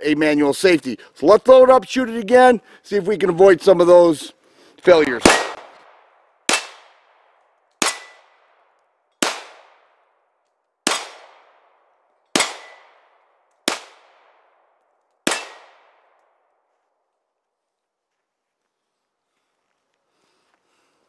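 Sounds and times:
pistol shots: 0:04.9 - 0:10.0, 0:10.8 - 0:16.4.

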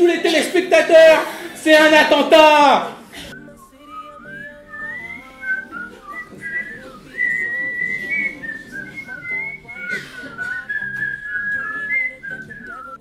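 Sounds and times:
soft lower accompaniment: 0:03.0 - 0:13.0
person whistling a tune: 0:03.2 - 0:13.0.

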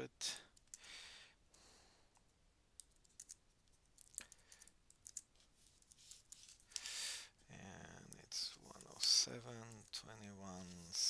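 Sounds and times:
faint keyboard keystrokes: 0:02.2 - 0:03.4, 0:04.0 - 0:06.8.

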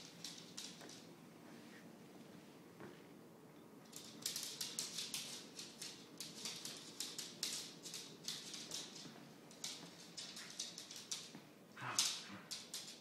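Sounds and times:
animals scuffling on wooden floor: 0:04.0 - 0:13.0.

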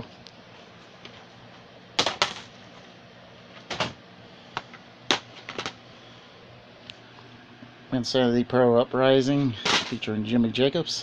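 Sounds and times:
plastic cases clacking: 0:05.1 - 0:05.8.

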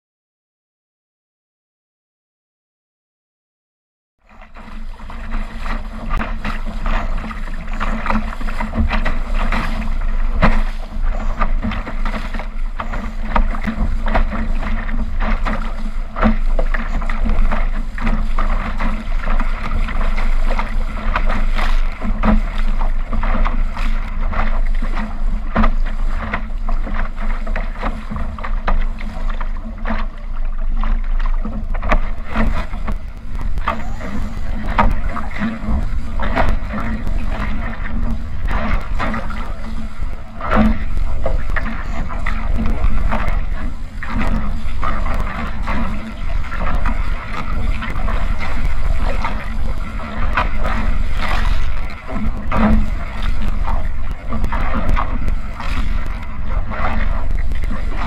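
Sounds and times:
boat hull slapping water: 0:04.2 - 0:58.0
hull knocking on waves: 0:04.2 - 0:58.0
rushing water spray: 0:04.6 - 0:58.0
wind buffeting microphone: 0:31.2 - 0:58.0.

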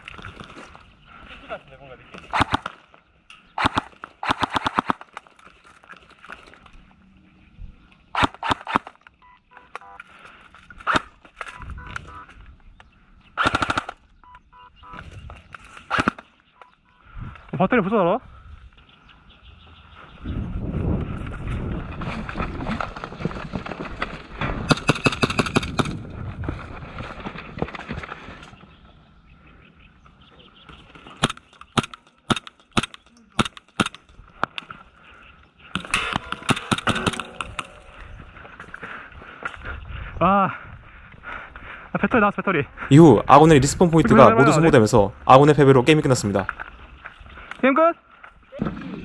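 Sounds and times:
airsoft gunfire cracks: 0:02.3 - 0:02.8, 0:03.6 - 0:05.0
airsoft guns firing: 0:02.3 - 0:02.8, 0:03.6 - 0:05.2, 0:08.2 - 0:09.0, 0:13.4 - 0:14.0, 0:15.9 - 0:16.2, 0:24.7 - 0:26.0, 0:31.2 - 0:34.1, 0:35.8 - 0:37.7.

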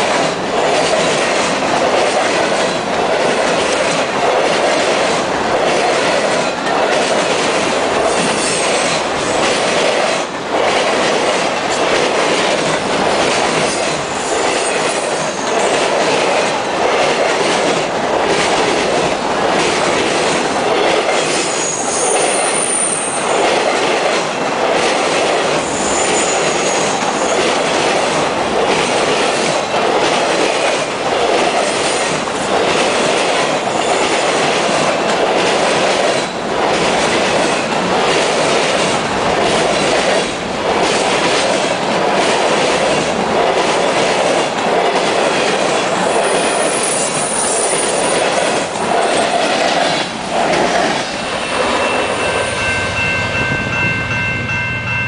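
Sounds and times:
freight train rumbling past: 0:00.0 - 0:55.0
high wheel squeals: 0:21.6 - 0:23.2.

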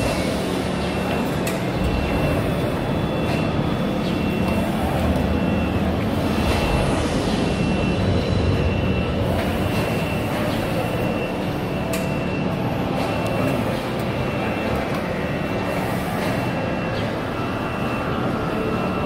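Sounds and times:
machinery din in a hall: 0:00.0 - 0:19.0
thin high whine: 0:00.0 - 0:19.0.

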